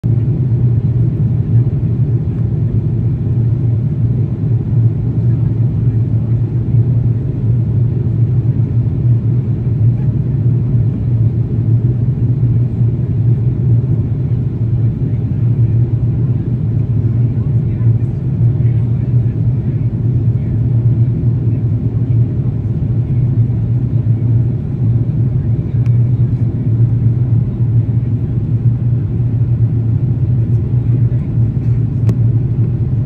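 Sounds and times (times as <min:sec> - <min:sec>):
airliner cabin engine rumble: 0:00.0 - 0:33.0.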